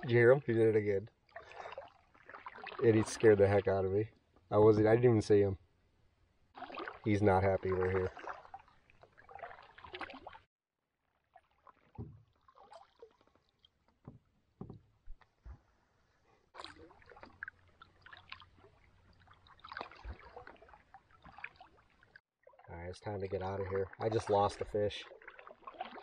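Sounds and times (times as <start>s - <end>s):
paddle strokes in water: 1.2s - 3.7s, 6.6s - 22.7s, 23.6s - 26.0s
soft knocks: 12.0s - 12.2s, 14.0s - 15.6s.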